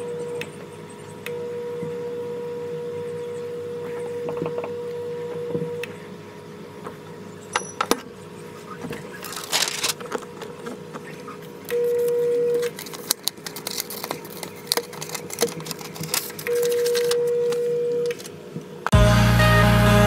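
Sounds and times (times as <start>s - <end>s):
timer alarm tone: 1.3s - 5.9s
paper rustling and crinkling: 8.9s - 11.3s, 12.6s - 18.3s.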